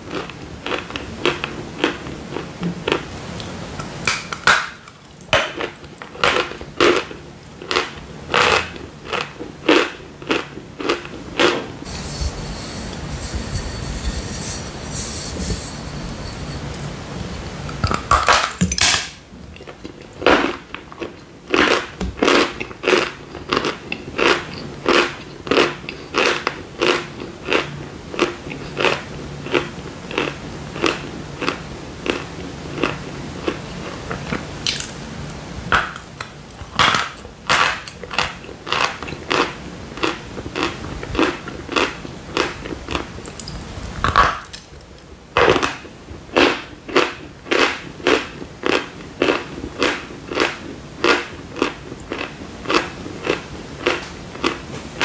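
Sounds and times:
chalk being chewed: 0:21.0 - 0:34.8, 0:36.9 - 0:43.0.

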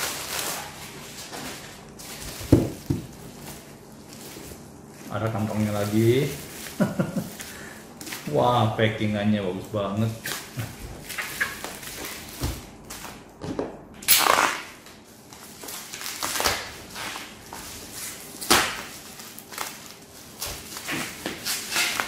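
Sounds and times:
plastic wrap crackling: 0:00.0 - 0:13.0, 0:14.1 - 0:22.0
blade slitting packing tape: 0:14.0 - 0:14.9, 0:15.6 - 0:17.4, 0:18.0 - 0:22.0
scraping rips: 0:14.1 - 0:14.8, 0:18.0 - 0:22.0.

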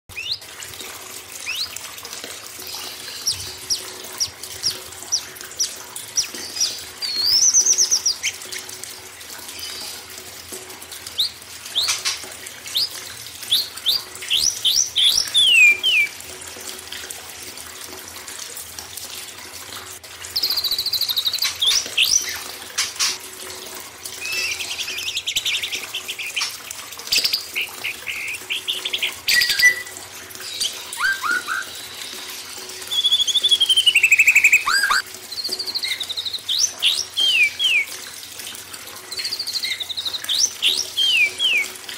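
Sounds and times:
songbirds singing: 0:00.1 - 0:00.5, 0:01.4 - 0:01.8, 0:02.6 - 0:08.6, 0:11.1 - 0:16.2, 0:24.2 - 0:37.9, 0:39.1 - 0:41.8
running water: 0:00.1 - 0:41.9.

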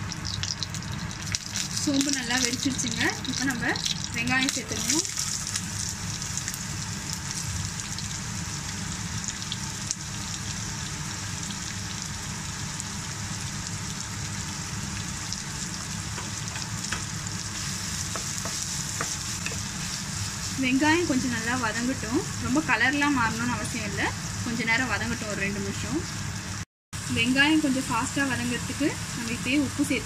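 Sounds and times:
onions sizzling in oil: 0:00.0 - 0:30.0
spatula clicking and scraping: 0:18.1 - 0:19.8.

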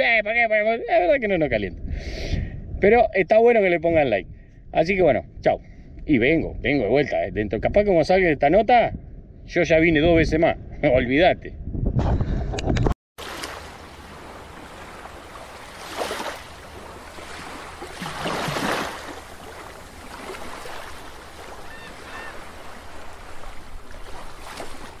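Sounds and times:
steady watery rush: 0:13.2 - 0:25.0.

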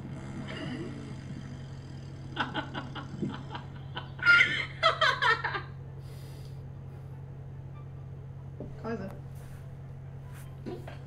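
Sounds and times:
man laughing: 0:02.4 - 0:05.7.

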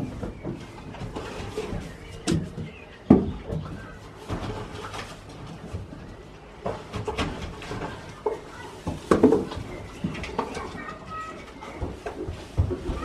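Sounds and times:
knocks and thumps: 0:00.0 - 0:05.9, 0:06.6 - 0:13.0.

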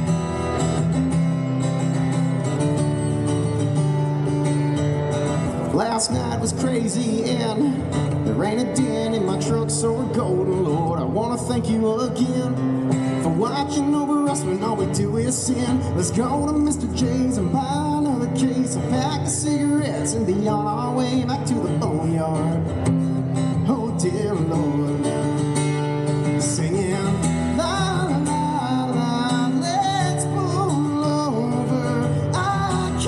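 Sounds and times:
acoustic guitar: 0:00.0 - 0:33.0
man singing country music: 0:00.0 - 0:33.0.

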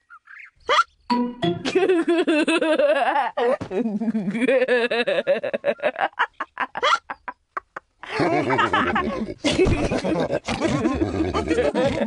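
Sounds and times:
hiccup: 0:00.7 - 0:00.9
voice giggling: 0:01.6 - 0:12.0.

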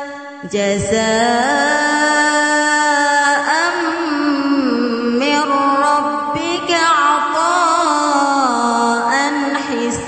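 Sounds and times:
person reciting melodically: 0:00.0 - 0:10.0.

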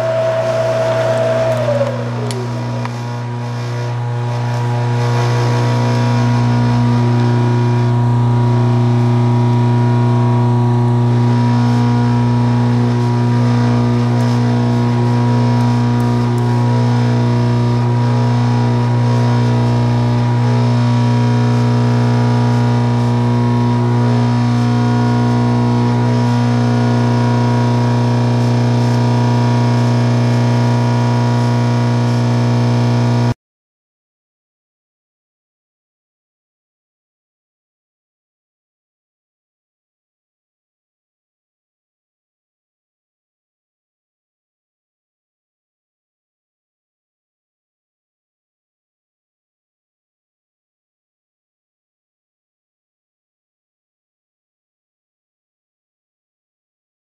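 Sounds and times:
milling machine motor hum: 0:00.0 - 0:33.3.

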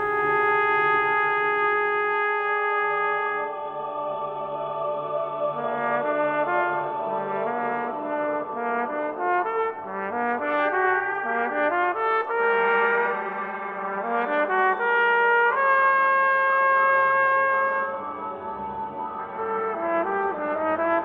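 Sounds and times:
solo trumpet: 0:00.0 - 0:03.7, 0:05.6 - 0:21.0.

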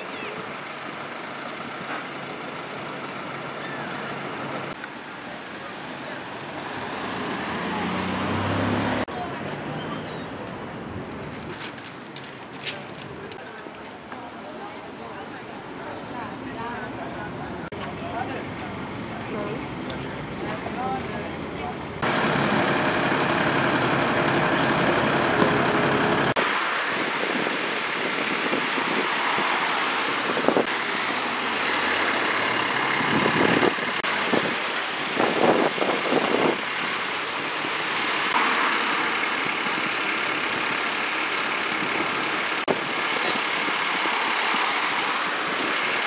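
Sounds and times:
heavy engine running: 0:00.0 - 0:04.8, 0:17.6 - 0:29.2, 0:29.8 - 0:46.0
traffic hum: 0:00.0 - 0:46.0.

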